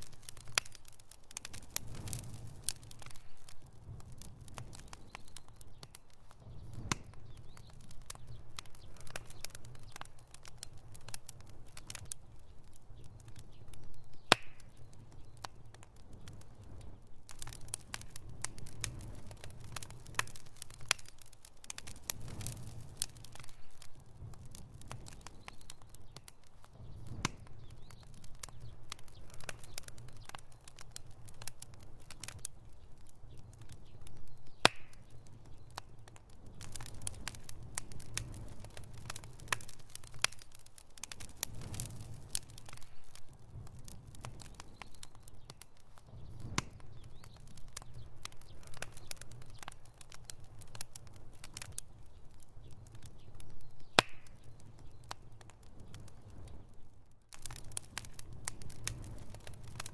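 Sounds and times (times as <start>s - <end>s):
fire popping: 0.0s - 59.9s
wood fire crackling: 0.0s - 59.9s.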